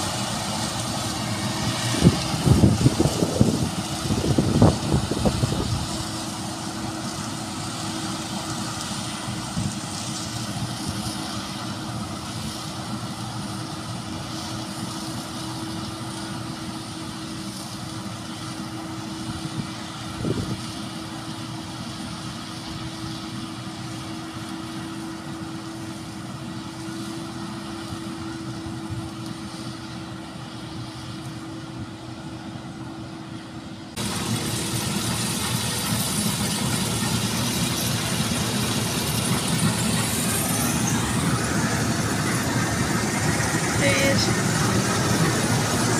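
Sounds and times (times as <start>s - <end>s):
combine harvester humming: 0.0s - 45.9s.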